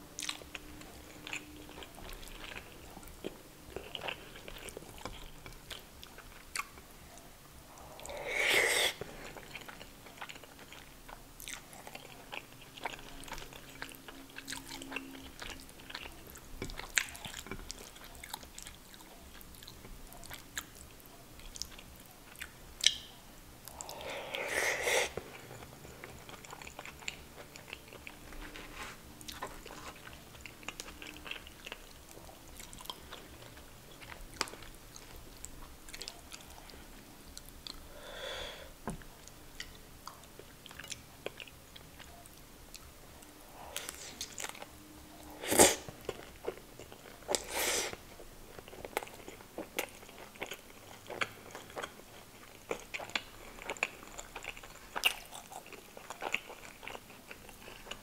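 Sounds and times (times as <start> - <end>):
wet chewing and lip smacking: 0.1 - 8.3, 8.9 - 24.0, 25.1 - 37.9, 39.0 - 58.0.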